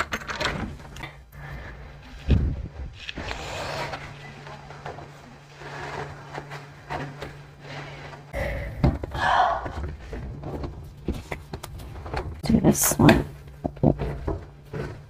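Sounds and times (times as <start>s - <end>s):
rag rubbing on tile floor: 3.1s - 8.4s.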